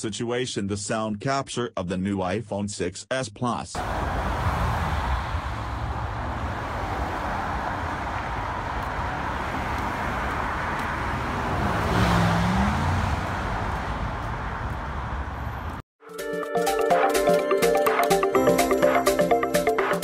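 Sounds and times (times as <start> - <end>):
car passing by: 3.8 - 15.8
road traffic passing: 3.8 - 15.8.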